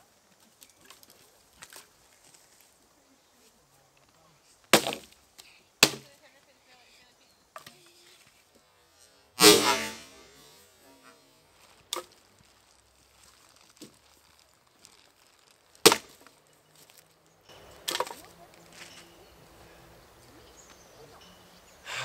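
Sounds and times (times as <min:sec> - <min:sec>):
axe chopping branches: 0:04.7 - 0:05.2, 0:05.8 - 0:06.1, 0:09.4 - 0:10.1, 0:15.8 - 0:16.3, 0:17.8 - 0:19.0.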